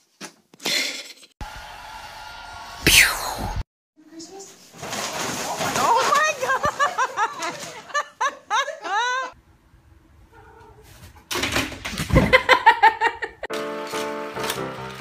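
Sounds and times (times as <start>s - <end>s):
person's excited laughing voice: 6.5s - 9.4s.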